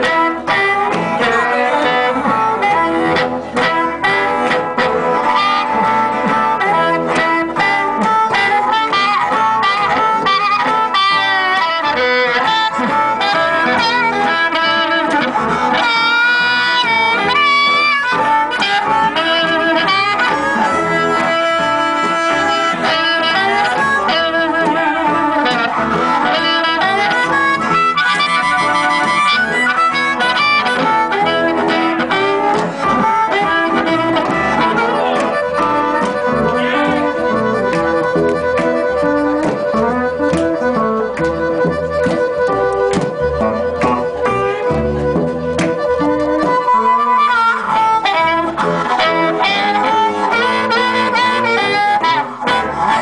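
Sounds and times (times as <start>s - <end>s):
amplified harmonica: 0.0s - 53.0s
electric guitar: 0.0s - 53.0s
upright double bass: 0.0s - 53.0s.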